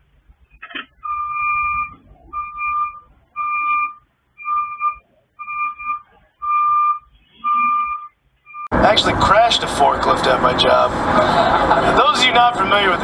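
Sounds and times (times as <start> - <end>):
reversing alarm beeps: 1.0 - 8.7.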